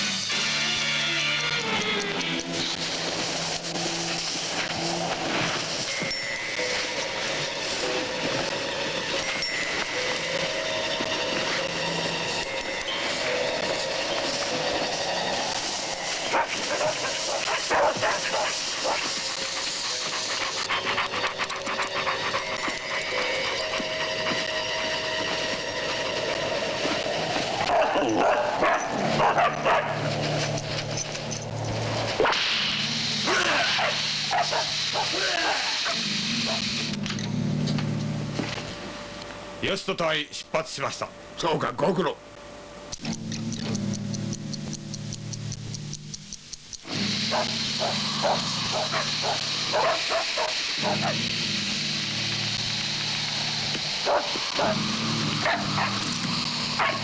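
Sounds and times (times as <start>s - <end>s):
steady hiss and hum: 0.0s - 57.0s
dogs yelping and barking: 16.1s - 24.1s, 27.6s - 32.4s, 33.6s - 36.8s, 47.3s - 51.3s, 54.0s - 54.8s, 55.4s - 57.0s
low steady hum: 36.0s - 57.0s.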